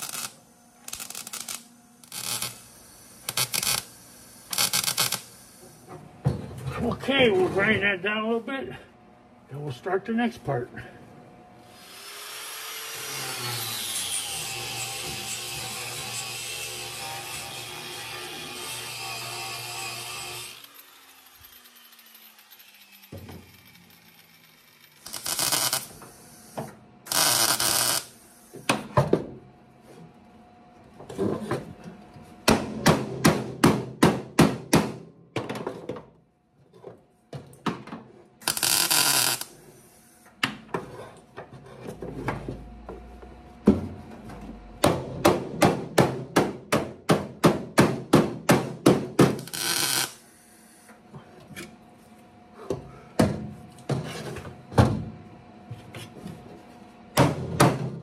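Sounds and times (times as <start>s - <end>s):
grinder bursts: 0.0s - 5.9s, 11.7s - 28.3s, 38.4s - 39.6s, 49.4s - 50.4s.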